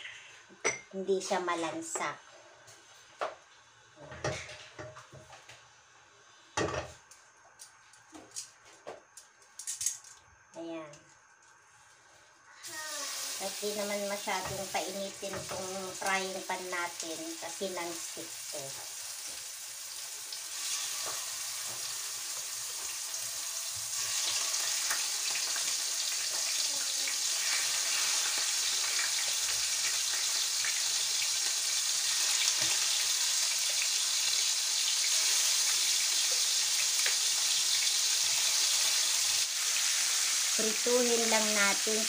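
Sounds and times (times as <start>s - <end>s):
fish sizzling in hot oil: 12.6s - 42.0s.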